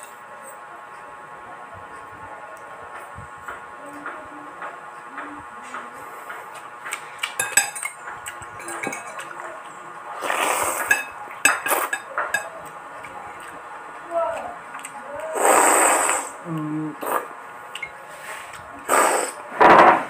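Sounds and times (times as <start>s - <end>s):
cutlery clinking on ceramic bowl: 7.2s - 9.4s, 10.8s - 12.6s
slurp from spoon: 10.2s - 10.9s, 15.4s - 16.3s, 18.9s - 19.4s.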